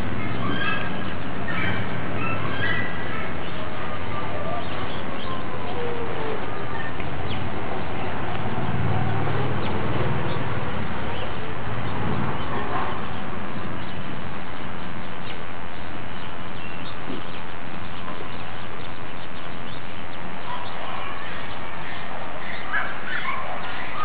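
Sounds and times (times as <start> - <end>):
steady background noise: 0.0 - 24.0
faint bird chirps: 11.1 - 24.0.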